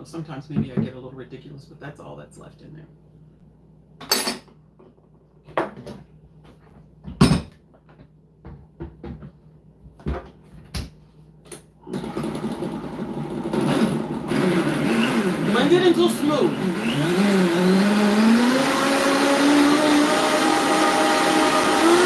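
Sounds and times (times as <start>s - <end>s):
blender motor running: 11.8s - 22.0s.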